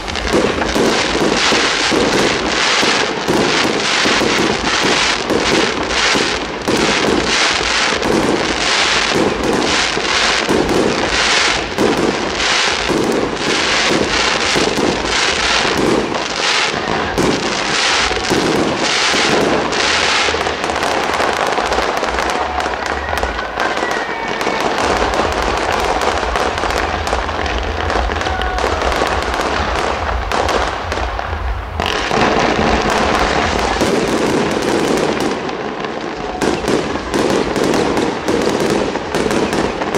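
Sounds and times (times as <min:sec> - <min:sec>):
fireworks bursting: 0:00.0 - 0:39.9
fireworks crackling: 0:00.0 - 0:39.9
deep rumble: 0:24.8 - 0:34.6.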